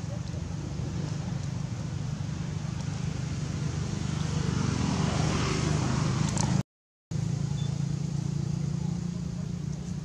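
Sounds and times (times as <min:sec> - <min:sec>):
low engine drone: 0:07.1 - 0:10.0.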